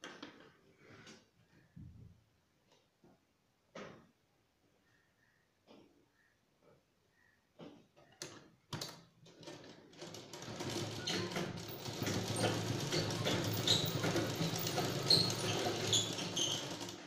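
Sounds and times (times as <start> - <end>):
sewing machine running: 9.4 - 17.0.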